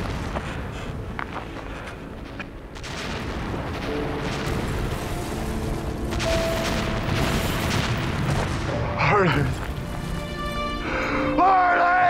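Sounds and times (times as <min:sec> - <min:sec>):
dramatic orchestral score: 0:00.0 - 0:12.0
rumbling explosion boom: 0:02.8 - 0:10.3.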